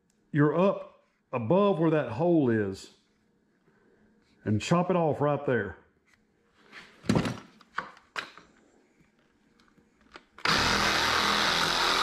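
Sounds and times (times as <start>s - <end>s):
reciprocating saw cutting plastic: 10.4s - 12.0s.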